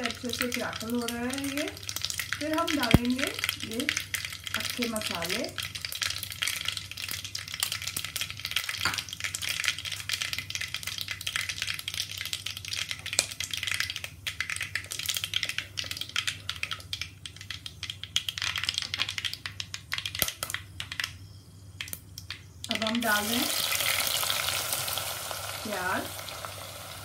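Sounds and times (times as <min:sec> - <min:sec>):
spices crackling in hot oil: 0:00.0 - 0:27.0.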